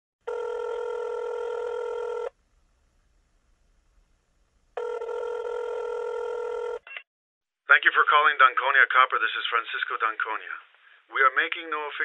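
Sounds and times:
telephone ringback tone: 0:00.3 - 0:02.3, 0:04.8 - 0:06.8.

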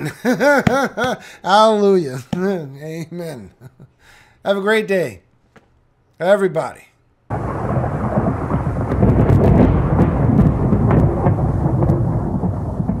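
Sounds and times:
rain: 0:07.3 - 0:13.0
thunder crackles: 0:07.3 - 0:13.0
thunder rumbling: 0:07.3 - 0:13.0.

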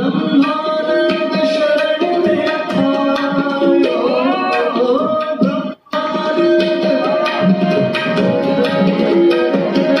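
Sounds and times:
tabla playing quick strokes: 0:05.1 - 0:10.0.

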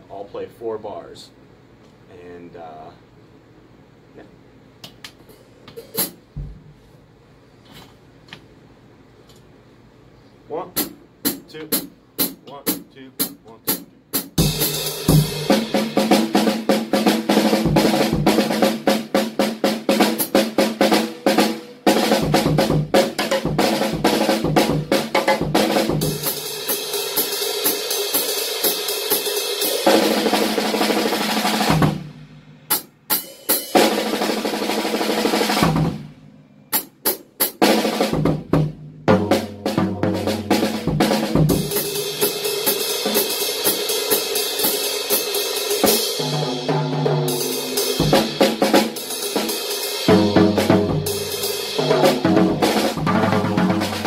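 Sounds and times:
jazz drum solo with sticks: 0:10.6 - 0:54.0.

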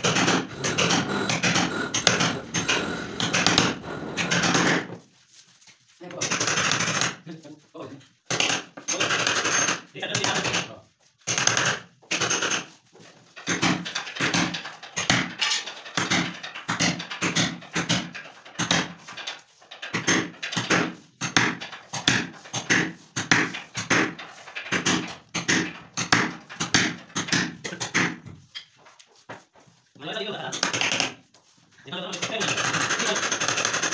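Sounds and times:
hammer striking a chisel: 0:00.0 - 0:04.9.

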